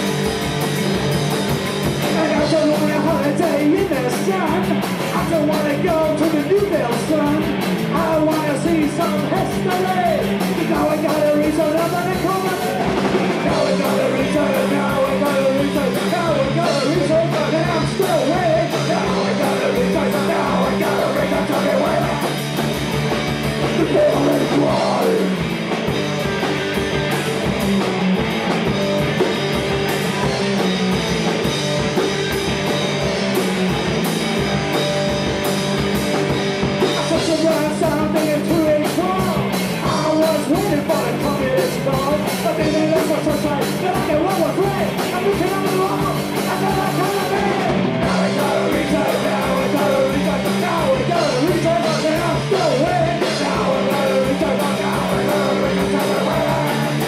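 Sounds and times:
punk rock band playing: 0.0 - 57.0
lead vocal singing: 2.0 - 22.4, 23.6 - 25.4, 36.8 - 57.0.

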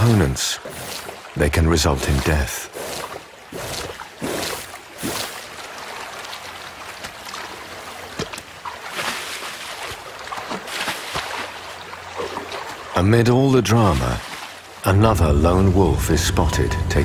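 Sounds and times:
splashes of animal wading: 0.6 - 13.0, 13.8 - 14.8.

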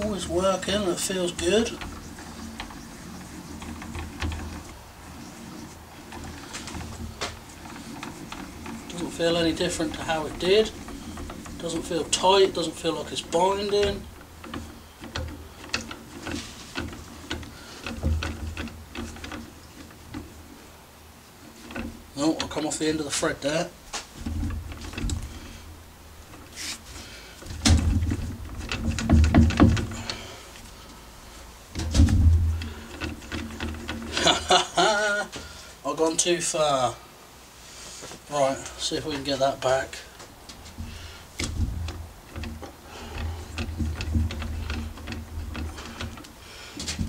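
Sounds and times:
lathe slide rumbling and clicking: 0.0 - 36.2, 37.4 - 47.0
metal scrape: 26.4 - 27.2.

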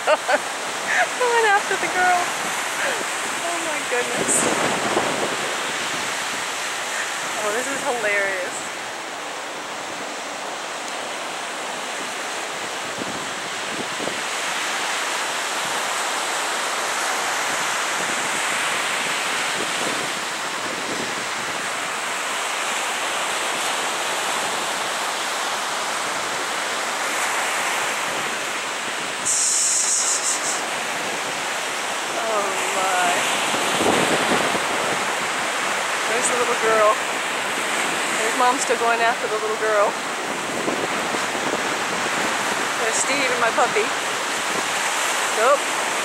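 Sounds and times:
ocean surf rushing: 0.0 - 46.0
wind on microphone: 0.0 - 46.0
high fluttering hiss: 29.2 - 31.0.

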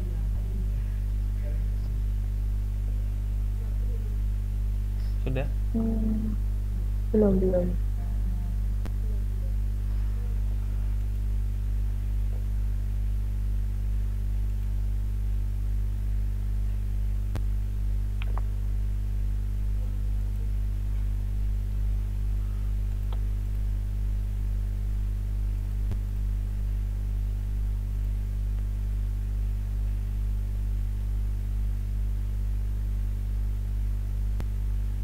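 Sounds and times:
electrical mains hum: 0.0 - 35.0
faint clicks: 10.9 - 11.2.

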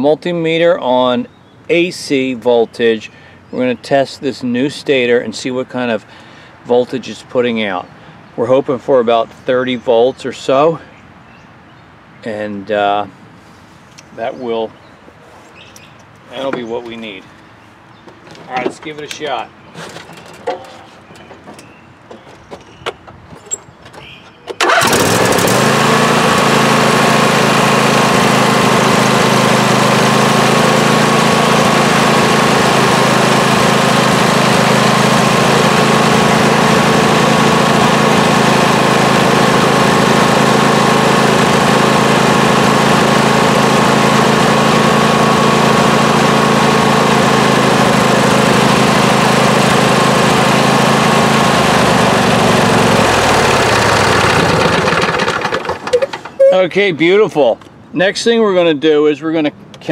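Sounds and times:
lawn tractor engine running: 24.6 - 56.7.

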